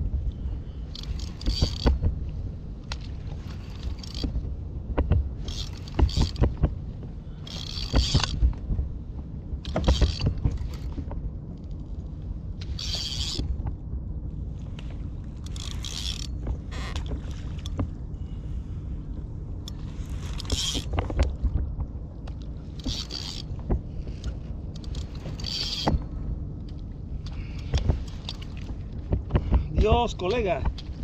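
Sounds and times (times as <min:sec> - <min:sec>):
water rumbling against hull: 0:00.0 - 0:31.0
kayak creaking: 0:00.4 - 0:08.7, 0:09.6 - 0:11.8, 0:12.6 - 0:13.7, 0:14.7 - 0:18.5, 0:19.7 - 0:31.0
fishing reel clicking: 0:00.9 - 0:01.9, 0:03.7 - 0:04.2, 0:05.5 - 0:06.4, 0:07.5 - 0:08.3, 0:12.7 - 0:13.4, 0:15.5 - 0:16.3, 0:20.4 - 0:20.9, 0:22.8 - 0:23.5, 0:24.8 - 0:25.9.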